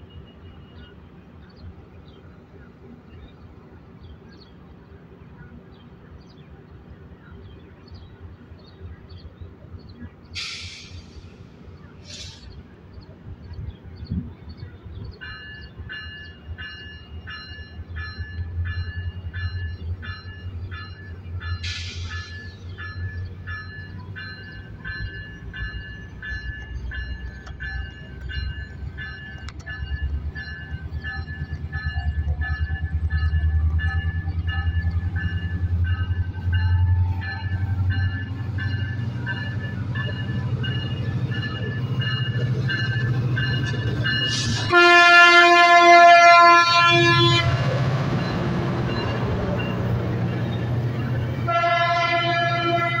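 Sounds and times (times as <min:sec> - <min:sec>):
diesel locomotive rumble: 0:00.0 - 0:53.0
short hissing bursts: 0:10.4 - 0:11.4.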